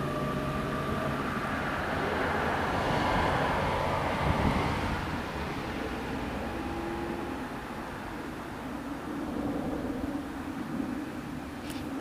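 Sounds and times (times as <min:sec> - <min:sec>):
electric train rumbling: 0:00.0 - 0:12.0.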